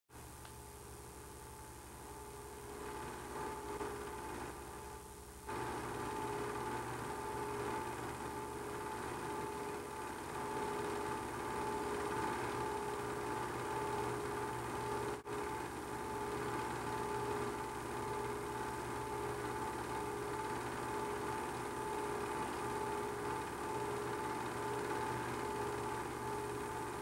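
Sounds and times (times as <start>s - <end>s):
film projector humming: 0.2s - 27.0s.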